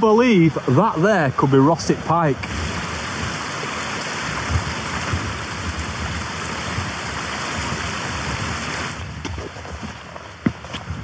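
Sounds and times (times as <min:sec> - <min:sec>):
mountain stream rushing: 0:00.0 - 0:11.0
low rumbles: 0:04.2 - 0:11.0.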